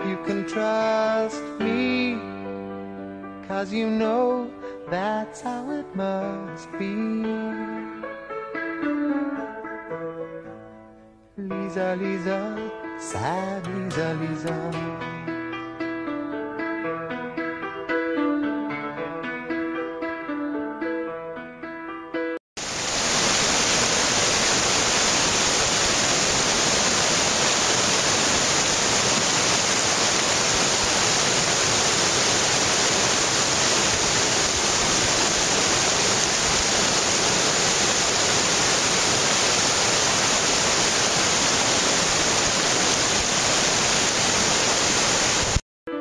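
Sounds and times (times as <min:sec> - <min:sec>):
torrent rushing over rocks: 0:22.8 - 0:45.6.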